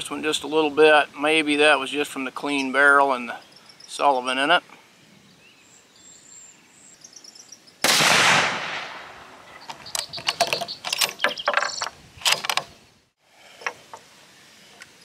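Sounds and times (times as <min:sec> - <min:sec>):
rifle shot: 0:07.8 - 0:09.5.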